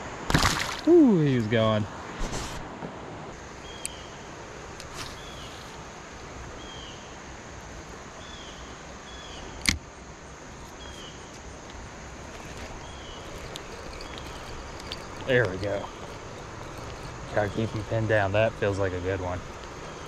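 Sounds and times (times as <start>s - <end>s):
river flowing: 11.6s - 20.0s.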